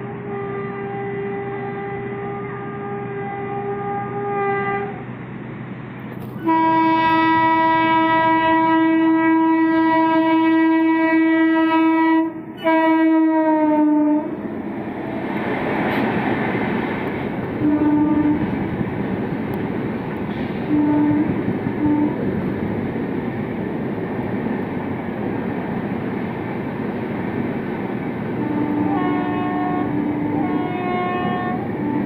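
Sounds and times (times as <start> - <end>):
locomotive air horn blasts: 0.0 - 5.0, 6.4 - 14.3, 17.6 - 18.6, 20.6 - 22.2, 28.4 - 32.0
train rumbling past: 0.0 - 32.0.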